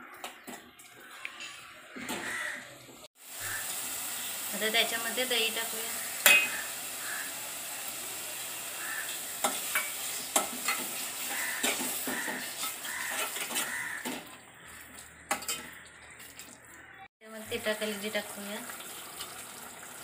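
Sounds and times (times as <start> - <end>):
oil and paste sizzling: 0.0 - 20.0
spoon clinking and scraping pot: 6.2 - 6.7, 9.4 - 14.3, 15.3 - 15.9.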